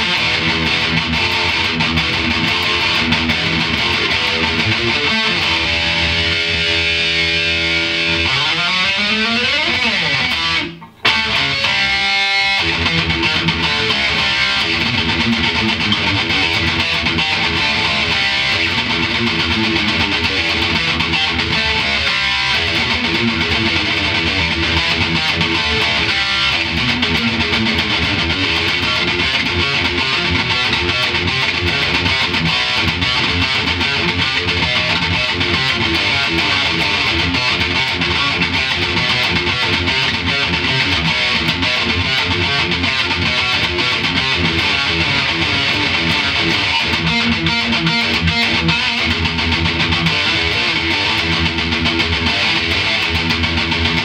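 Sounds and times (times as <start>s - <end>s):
distorted electric guitar riff: 0.0s - 54.0s.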